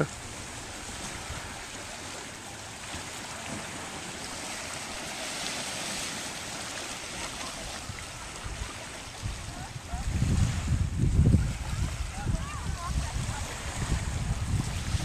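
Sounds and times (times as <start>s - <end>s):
lake waves lapping at shore: 0.0s - 15.0s
wind on microphone: 7.5s - 15.0s.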